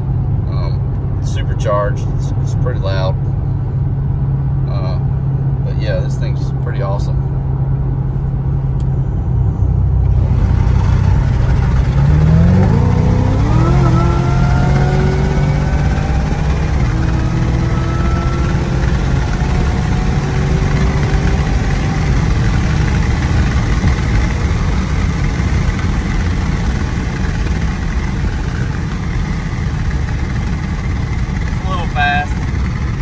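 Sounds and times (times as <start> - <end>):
wind and road noise: 0.0 - 33.0
car engine accelerating hard: 10.0 - 33.0.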